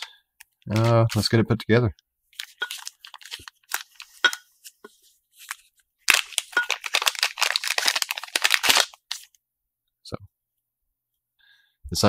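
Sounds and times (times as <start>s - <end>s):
plastic bag crinkling: 2.4s - 4.4s, 5.4s - 9.4s.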